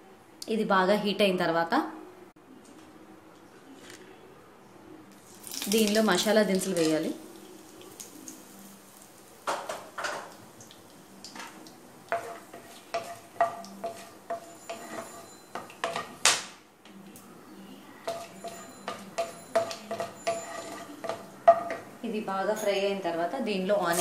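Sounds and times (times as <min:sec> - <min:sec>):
wooden spatula scraping a pan: 0:11.4 - 0:16.1, 0:18.1 - 0:21.9.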